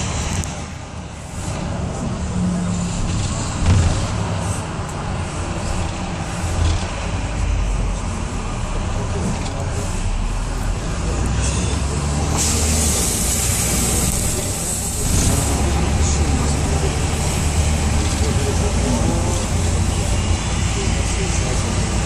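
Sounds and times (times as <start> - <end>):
engine and tyre rumble: 0.0 - 22.0
rushing hiss: 12.3 - 15.8.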